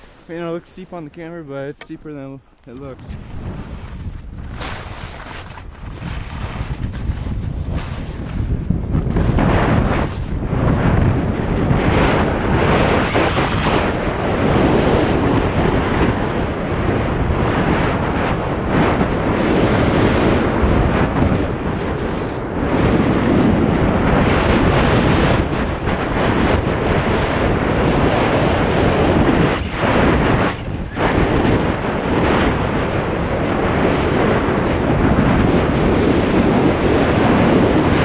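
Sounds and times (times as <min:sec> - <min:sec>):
skis scraping on snow: 0:00.0 - 0:01.7, 0:02.7 - 0:15.2, 0:18.1 - 0:25.4
wind rushing over microphone: 0:00.0 - 0:38.0.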